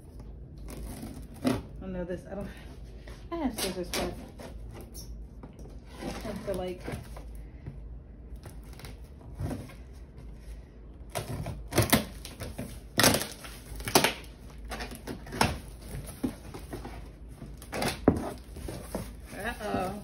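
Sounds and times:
scissors slitting packing tape: 0:11.1 - 0:15.6.

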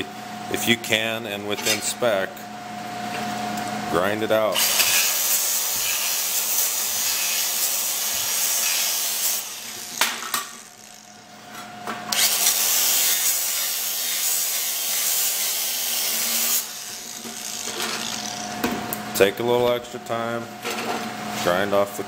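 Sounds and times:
angle grinder grinding steel: 0:04.6 - 0:11.3, 0:12.1 - 0:18.6.

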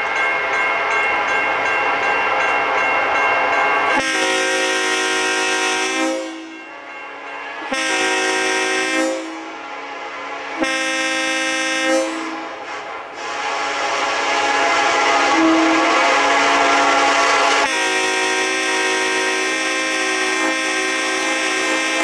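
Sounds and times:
train rumble: 0:00.0 - 0:22.0
locomotive horn blasts: 0:03.9 - 0:06.5, 0:07.6 - 0:09.6, 0:10.3 - 0:12.5, 0:13.2 - 0:22.0.

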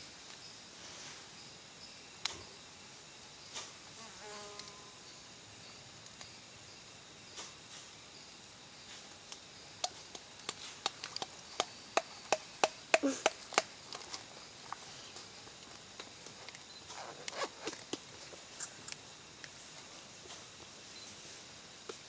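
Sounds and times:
high insect buzz: 0:00.4 - 0:22.0
peccaries clacking teeth: 0:09.8 - 0:14.8.

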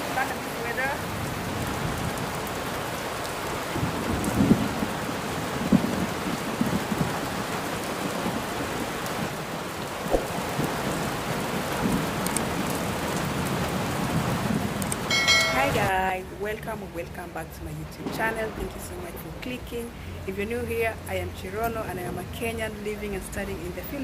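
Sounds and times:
heavy rain pouring: 0:00.0 - 0:24.0
thunder thuds: 0:10.0 - 0:10.7.

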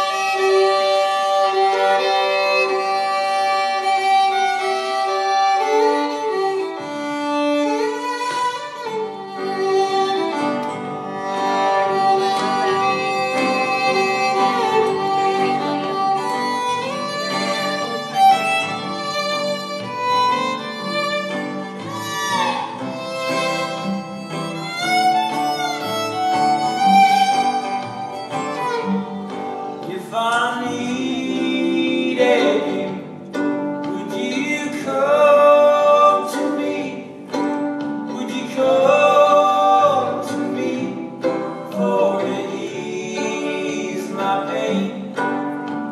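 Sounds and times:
strings playing: 0:00.0 - 0:45.9
violin melody: 0:00.0 - 0:45.9
singing: 0:38.1 - 0:45.0.

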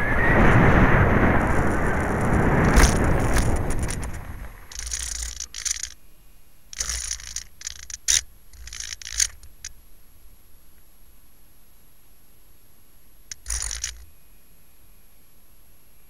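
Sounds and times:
model plane scraping through grass: 0:01.5 - 0:06.0, 0:13.3 - 0:14.1.

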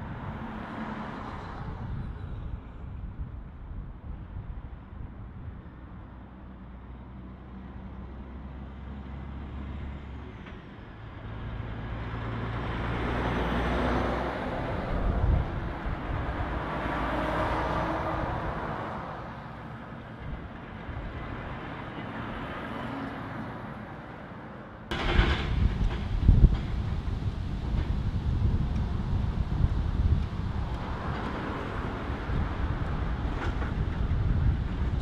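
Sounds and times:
trucks driving past: 0:00.0 - 0:35.0
low engine hum: 0:24.9 - 0:35.0.

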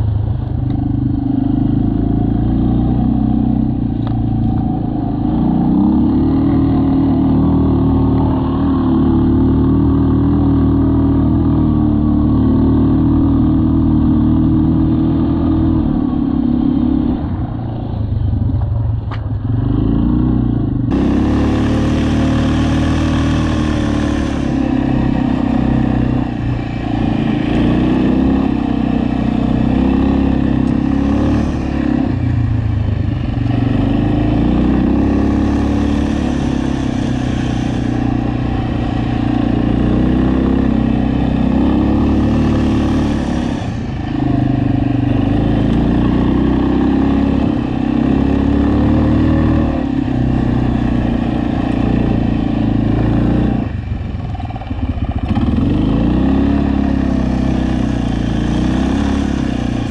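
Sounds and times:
atv engine running: 0:00.0 - 0:59.9
hiss: 0:21.0 - 0:27.1, 0:35.1 - 0:40.4, 0:41.9 - 0:44.5.

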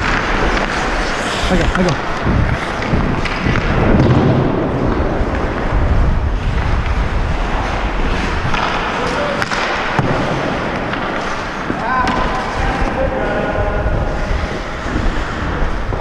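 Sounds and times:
ice skates scraping ice: 0:00.0 - 0:03.9, 0:04.6 - 0:16.0
wind buffeting microphone: 0:01.4 - 0:09.0, 0:12.3 - 0:16.0.

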